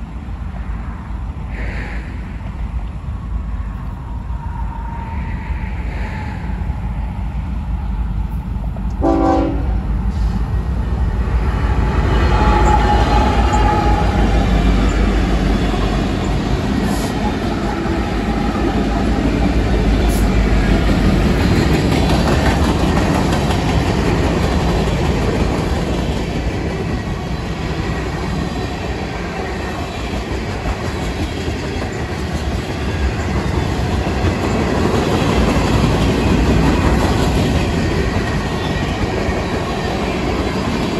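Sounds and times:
locomotive engines rumbling: 0.0 - 40.9
train horn blast: 8.9 - 10.4, 11.7 - 14.9.

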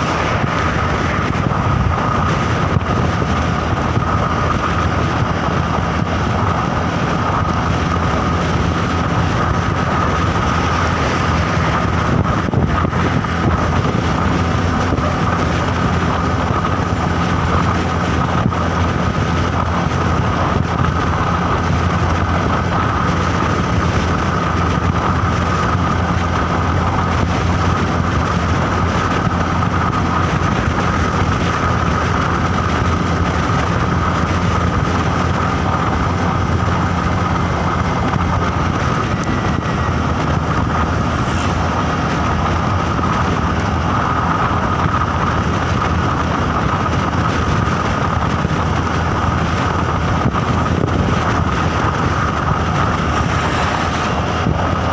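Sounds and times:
engine and road rumble: 0.0 - 54.9
steady high whine: 0.0 - 54.9.

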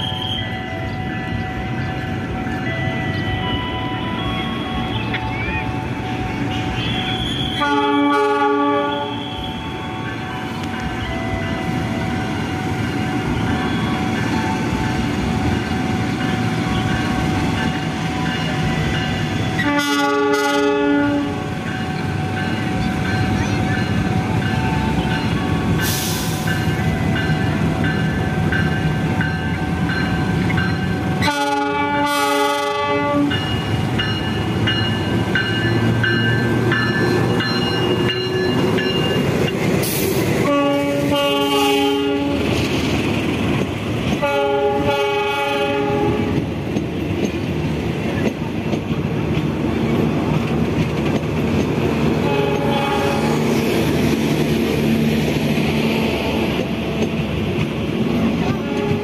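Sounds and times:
diesel locomotive engine: 0.0 - 59.0
train horn blasts: 6.5 - 9.8, 19.4 - 21.5, 31.2 - 33.4, 40.4 - 42.6, 44.2 - 46.4, 52.2 - 53.6, 58.5 - 59.0
wheels clicking over rail joints: 46.2 - 52.8, 56.5 - 59.0.

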